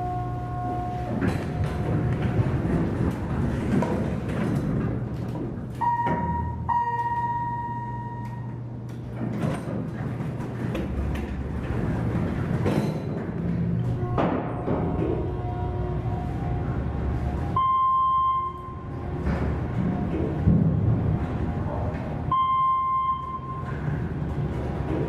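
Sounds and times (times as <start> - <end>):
elevator doors sliding open: 0.0 - 25.0
elevator arrival chime: 5.8 - 8.6, 17.6 - 18.9, 22.3 - 24.0.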